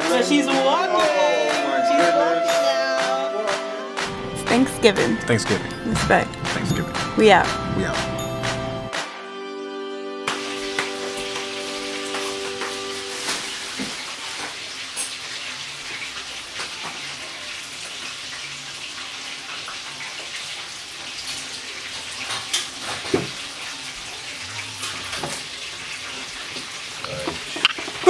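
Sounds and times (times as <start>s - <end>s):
running water hiss: 10.3s - 28.0s.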